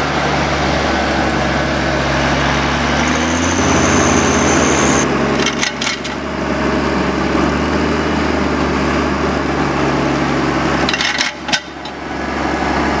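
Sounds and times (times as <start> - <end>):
diesel engine running: 0.0 - 10.8
tracked wheels rolling: 2.1 - 5.0.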